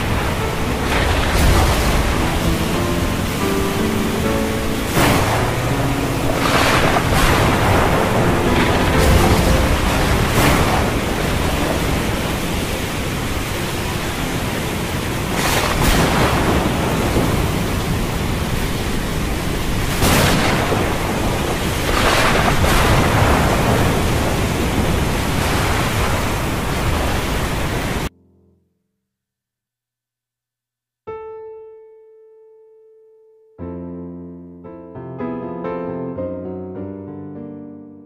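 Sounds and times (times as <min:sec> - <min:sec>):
rain rushing: 0:00.0 - 0:28.1
thunder rumble: 0:00.0 - 0:28.1.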